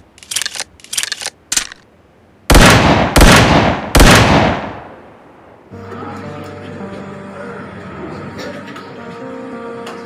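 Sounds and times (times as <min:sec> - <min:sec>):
metallic gun clicks: 0:00.1 - 0:01.8
loud gunshots with ringing tail: 0:02.5 - 0:05.1.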